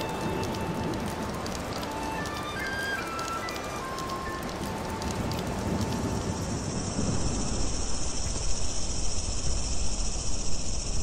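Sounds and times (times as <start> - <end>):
rain pattering on plants: 0.0 - 8.4
insects chirring chorus: 6.0 - 11.0.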